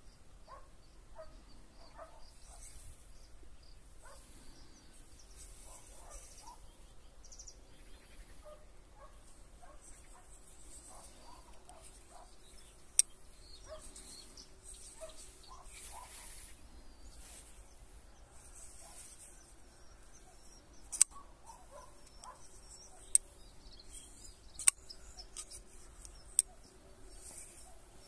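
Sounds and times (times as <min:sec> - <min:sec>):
birds chirping faintly: 0:00.0 - 0:28.0.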